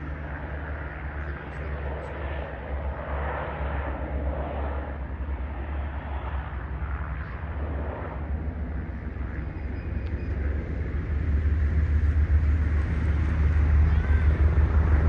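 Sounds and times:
distant seaplane engines droning: 0.0 - 15.0
low rumble: 5.7 - 15.0.

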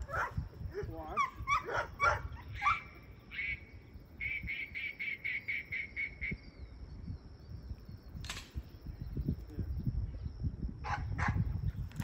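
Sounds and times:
animal high-pitched calls: 1.1 - 6.1.

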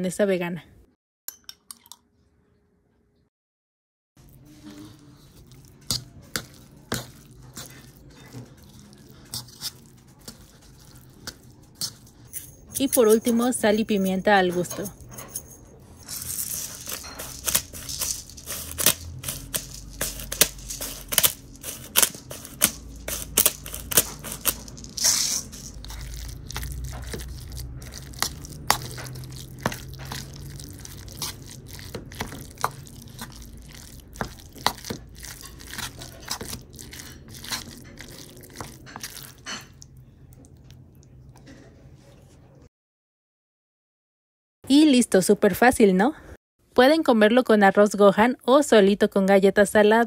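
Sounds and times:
metal spoon stirring in bowl: 4.2 - 39.9.

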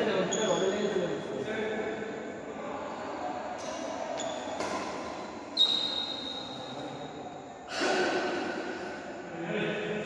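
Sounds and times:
sports hall background: 0.0 - 10.0.

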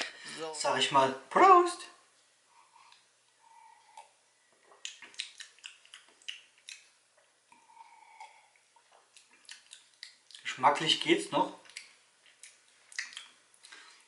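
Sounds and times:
wet clicks and gulps: 4.0 - 10.5, 11.6 - 14.0
person sipping and swallowing: 7.5 - 9.8.

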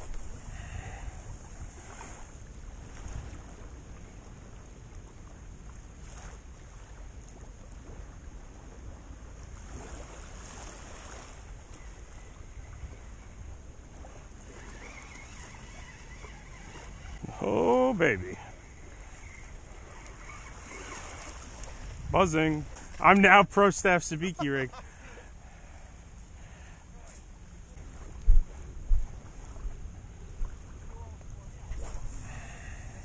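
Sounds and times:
wind: 0.0 - 33.0
surf rushing: 14.4 - 25.6.

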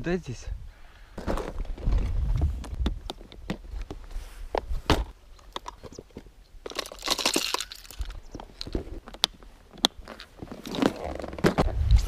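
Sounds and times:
rustling scrape: 4.0 - 4.9.

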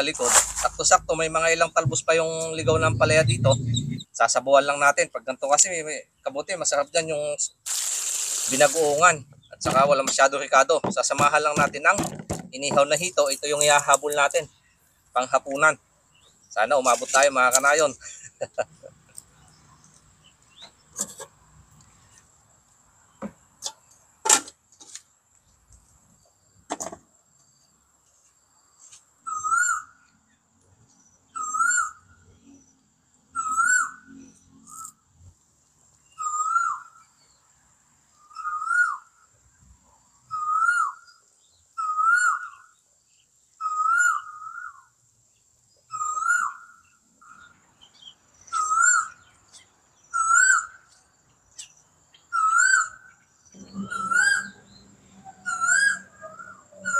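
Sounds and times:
bird whistling call: 1.9 - 4.1, 29.3 - 29.9, 31.3 - 32.1, 33.4 - 34.9, 36.1 - 36.9, 38.2 - 39.1, 40.3 - 41.1, 41.8 - 42.7, 43.6 - 44.8, 45.9 - 46.7, 48.5 - 49.2, 50.1 - 50.8, 52.3 - 56.9
sharp knocks: 9.6 - 13.0.

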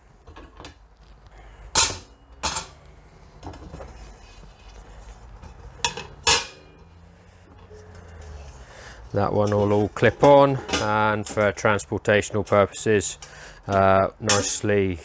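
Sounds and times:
metal stove parts clanking: 1.7 - 2.8, 5.8 - 6.9, 9.4 - 11.6.

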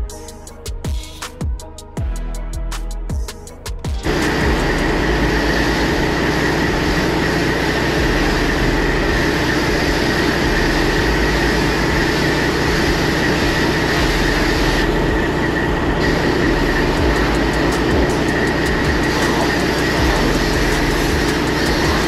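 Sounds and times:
high-pressure water spray hissing: 4.0 - 15.1, 16.0 - 22.0
constant high tone: 4.0 - 22.0.

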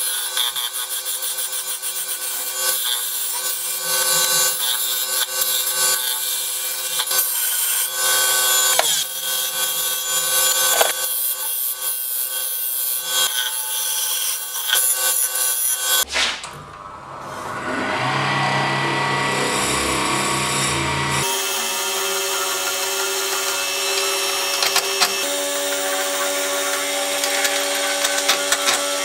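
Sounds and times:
lathe motor hum: 16.8 - 29.0
turning tool scraping wood: 21.2 - 29.0.

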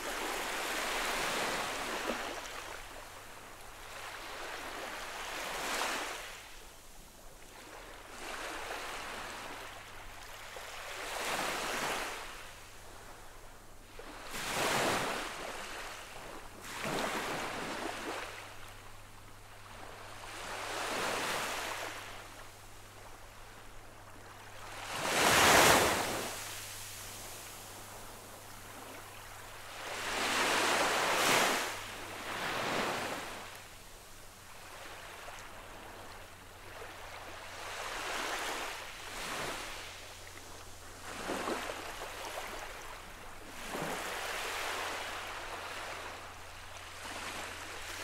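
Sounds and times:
small waves lapping on beach: 0.0 - 48.0.

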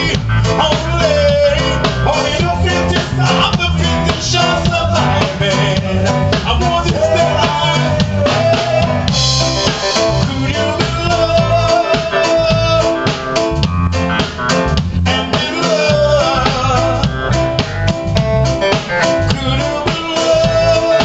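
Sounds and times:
man singing: 0.0 - 13.6, 14.9 - 17.6, 18.9 - 21.0
drum kit beat: 0.0 - 21.0
electric bass guitar: 0.0 - 21.0
keyboard: 0.0 - 21.0.

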